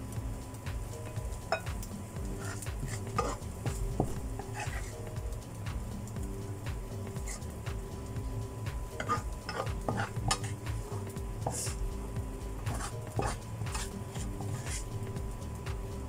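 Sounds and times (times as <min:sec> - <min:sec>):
spatula scraping metal pan: 0:02.4 - 0:05.1, 0:07.2 - 0:07.5, 0:09.0 - 0:11.8, 0:12.6 - 0:14.9.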